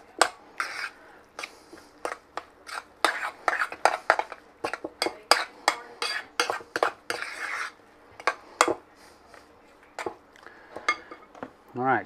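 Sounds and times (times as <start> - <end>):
metal spoon scraping a mixing bowl: 0.0 - 8.8.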